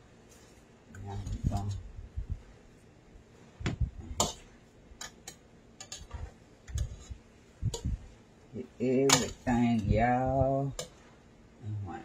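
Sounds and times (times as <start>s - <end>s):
metal tongs scraping a steel pot: 4.2s - 8.0s, 9.0s - 11.0s.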